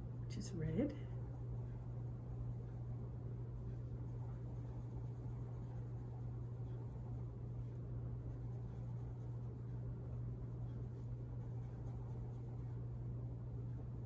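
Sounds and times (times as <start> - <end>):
steady low hum: 0.0 - 14.0
pencil scratching on paper: 3.7 - 13.1.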